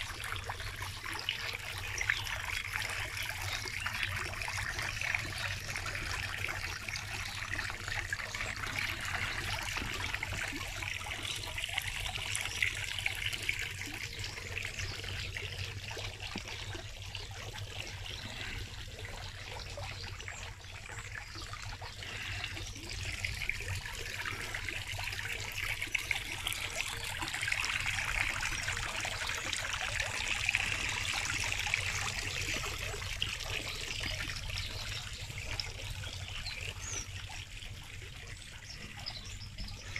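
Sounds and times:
fountain water trickling and splashing: 0:00.0 - 0:39.9.

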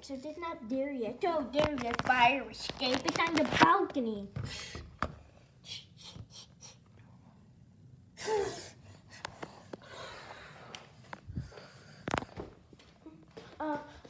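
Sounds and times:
quiet breathing: 0:04.4 - 0:12.7.

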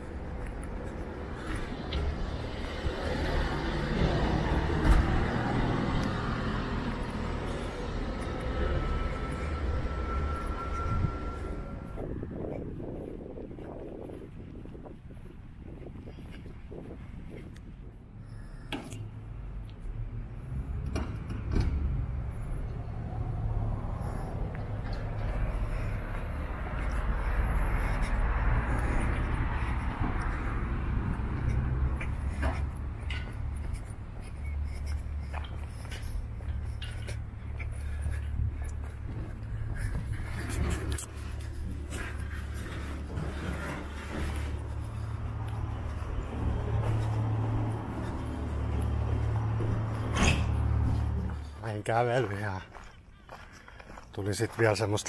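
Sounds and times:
car passing: 0:00.0 - 0:15.8, 0:18.2 - 0:52.6
steady low rumble: 0:00.0 - 0:20.8, 0:22.0 - 0:51.6
car driving past: 0:01.2 - 0:12.2, 0:40.0 - 0:51.6.

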